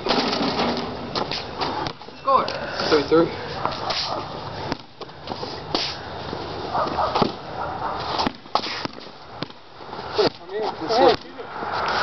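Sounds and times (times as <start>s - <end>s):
basketball bouncing on concrete: 8.2s - 9.6s.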